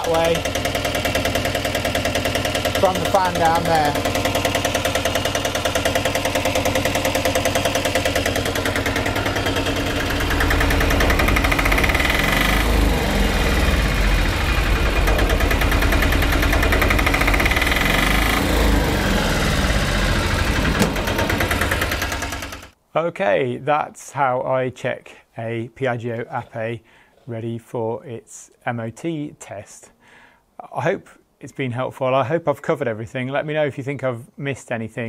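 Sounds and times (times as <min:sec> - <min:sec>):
diesel engine knocking: 0:00.0 - 0:22.8.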